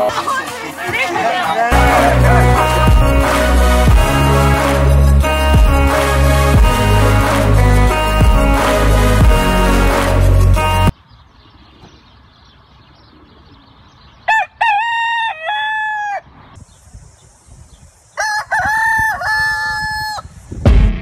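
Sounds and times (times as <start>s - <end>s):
rooster crowing: 14.3s - 16.3s, 18.2s - 20.3s.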